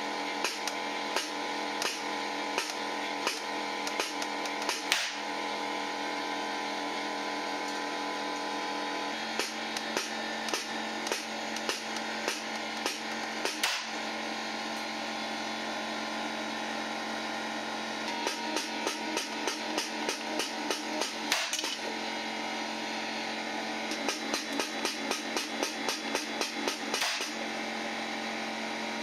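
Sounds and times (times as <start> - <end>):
background music with tapping beat: 24.0 - 27.3.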